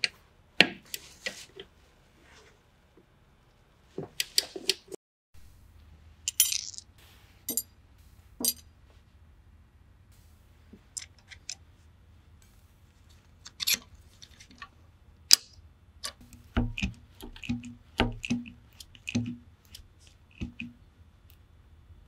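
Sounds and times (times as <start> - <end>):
metal tool clicks and knocks: 15.3 - 19.4.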